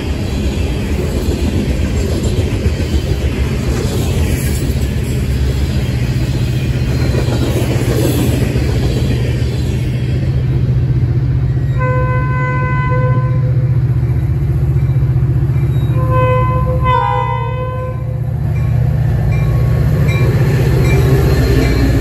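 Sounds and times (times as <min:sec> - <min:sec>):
locomotive engine rumble: 0:00.0 - 0:22.0
train cars rolling by: 0:00.0 - 0:22.0
train air horn blasts: 0:11.8 - 0:13.6, 0:16.0 - 0:18.2.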